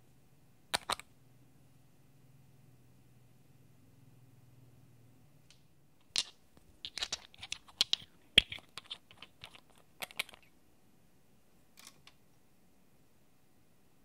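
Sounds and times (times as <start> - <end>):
glass bottles clicking: 6.1 - 10.5.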